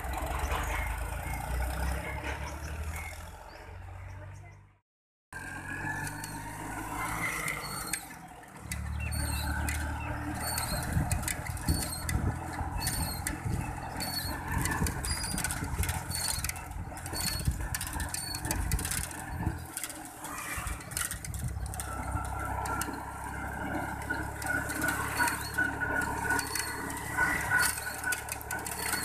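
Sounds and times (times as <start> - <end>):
metallic clattering of implement: 0.0 - 3.2, 5.8 - 29.0
tractor diesel engine running: 0.0 - 4.7, 5.4 - 29.0
short high squeaks: 5.9 - 29.0.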